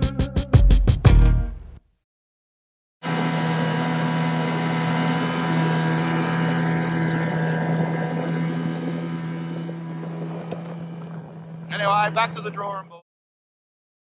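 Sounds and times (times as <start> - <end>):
outboard motor drone: 3.0 - 13.0.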